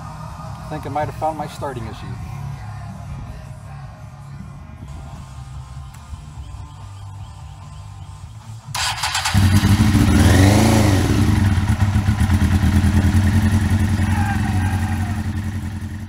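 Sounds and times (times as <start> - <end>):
motorcycle engine revving and idling: 6.2 - 16.0
motorcycle starter cranking: 8.7 - 12.6.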